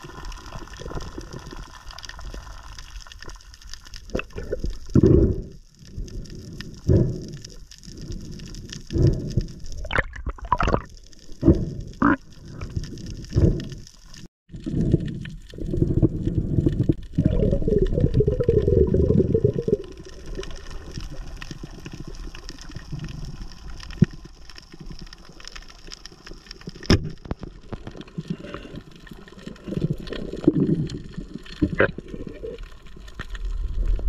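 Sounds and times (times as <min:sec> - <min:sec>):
water sloshing and gurgling: 0:00.0 - 0:34.0.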